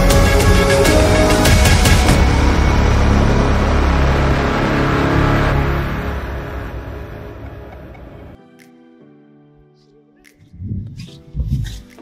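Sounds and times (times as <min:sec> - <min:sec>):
steady low bass: 0:10.4 - 0:11.7.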